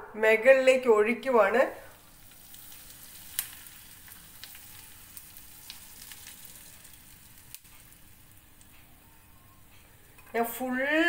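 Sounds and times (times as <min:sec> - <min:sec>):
hot oil sizzling: 0:01.2 - 0:11.0
small crackles and pops: 0:01.8 - 0:10.6.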